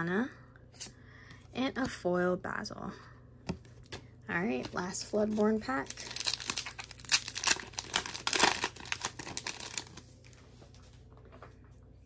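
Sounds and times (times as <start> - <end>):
foil wrapper tearing and crinkling: 4.5 - 10.1.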